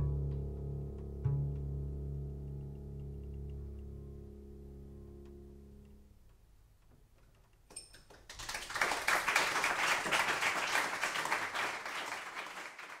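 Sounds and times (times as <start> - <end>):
audience applauding: 8.1 - 13.0.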